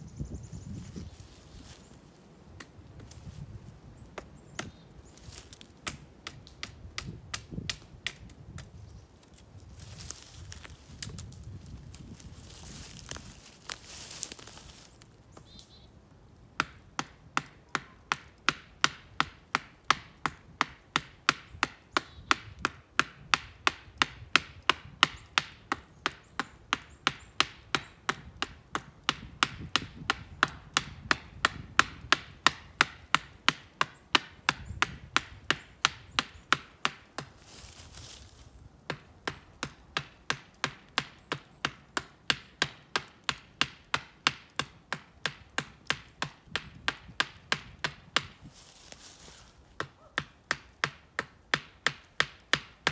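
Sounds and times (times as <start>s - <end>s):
axe chopping wood knocks: 5.8s - 8.7s, 16.6s - 37.4s, 38.9s - 48.4s, 49.8s - 52.9s
rustling: 9.2s - 15.7s, 48.5s - 50.1s.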